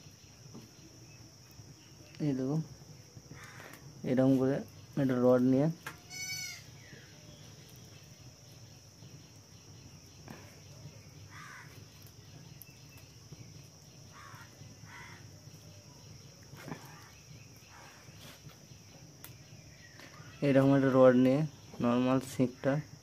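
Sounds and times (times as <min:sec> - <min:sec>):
insect chirring: 0:00.0 - 0:23.0
faint calls: 0:06.0 - 0:07.2, 0:11.2 - 0:12.1, 0:14.1 - 0:15.4.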